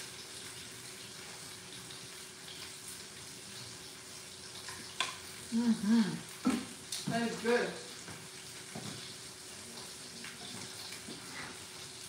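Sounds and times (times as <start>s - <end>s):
steak sizzling in a pan: 0.0s - 5.6s, 6.2s - 12.0s
person humming: 5.5s - 6.2s.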